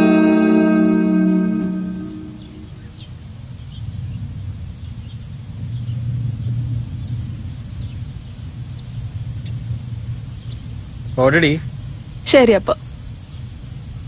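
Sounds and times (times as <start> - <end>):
scooter engine humming: 0.0 - 2.7
crickets trilling: 0.0 - 14.0.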